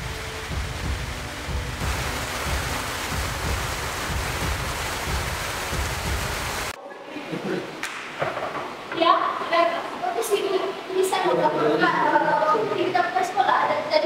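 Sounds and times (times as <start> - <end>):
steady rain hiss: 0.0 - 14.0.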